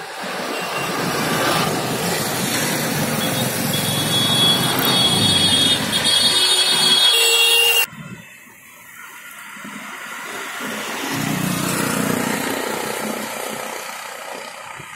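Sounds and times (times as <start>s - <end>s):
road traffic: 0.0s - 14.9s
vehicle passing: 1.0s - 6.8s.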